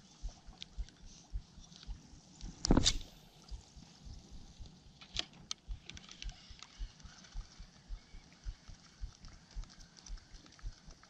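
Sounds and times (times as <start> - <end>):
fishing reel rhythmic thump: 0.2 - 3.7, 5.4 - 11.0
reel clicks: 4.6 - 11.0.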